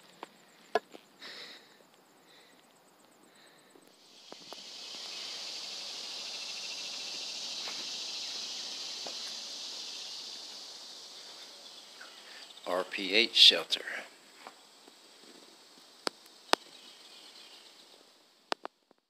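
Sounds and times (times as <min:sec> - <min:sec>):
insect buzzing: 0:00.0 - 0:13.0.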